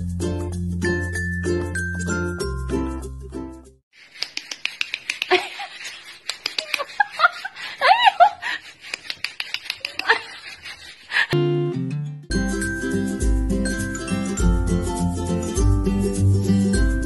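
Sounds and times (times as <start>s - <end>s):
music: 0.0s - 3.8s, 11.4s - 17.0s
rapid clicks and taps: 4.0s - 7.6s, 8.6s - 11.0s
person giggling: 5.2s - 8.7s, 9.7s - 10.5s.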